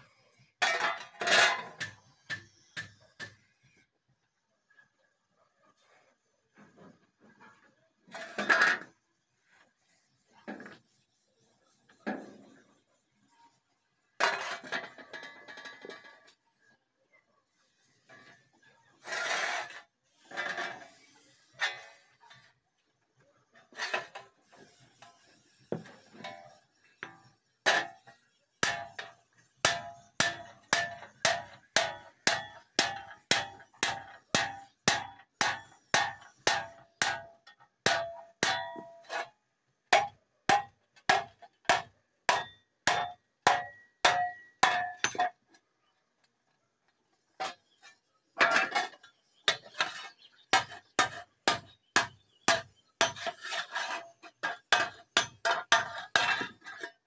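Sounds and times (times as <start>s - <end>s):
hammer striking steel sheet: 25.8s - 39.2s, 40.0s - 45.2s.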